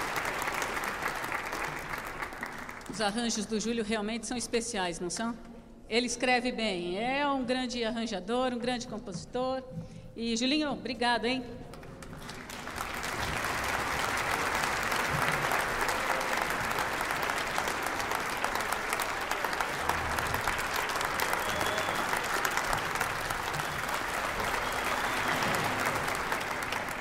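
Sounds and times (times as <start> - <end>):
audience applauding: 0.0 - 2.9, 11.7 - 27.0.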